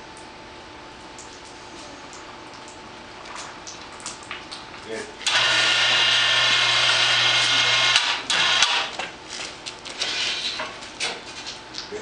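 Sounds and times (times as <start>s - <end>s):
machine motor humming: 5.2s - 9.0s.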